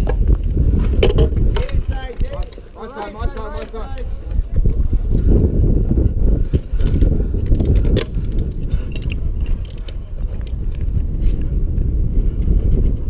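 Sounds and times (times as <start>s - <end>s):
metal hardware and rope clinking: 6.5s - 11.4s.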